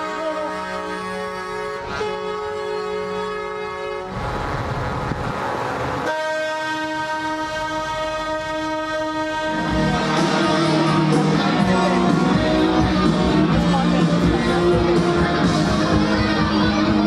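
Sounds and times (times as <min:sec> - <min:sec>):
truck air horn blast: 0:00.0 - 0:04.4, 0:06.0 - 0:12.9
music: 0:09.3 - 0:17.0.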